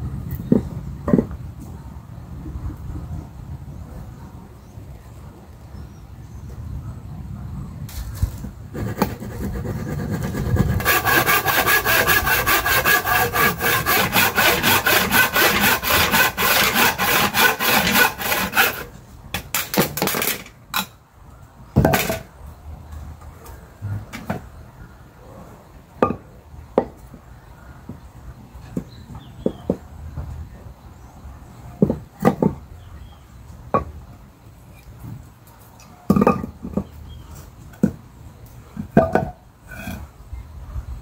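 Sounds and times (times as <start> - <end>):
handsaw cutting wood: 8.7 - 18.9.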